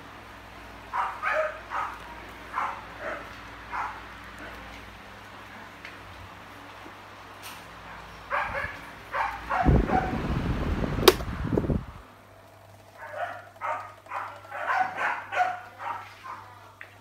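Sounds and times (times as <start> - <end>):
fan air buffeting microphone: 0.0 - 16.5
dog barking: 0.9 - 4.6, 7.8 - 10.2, 13.0 - 16.6
desk fan motor hum: 8.2 - 15.9
sharp click: 11.0 - 11.3.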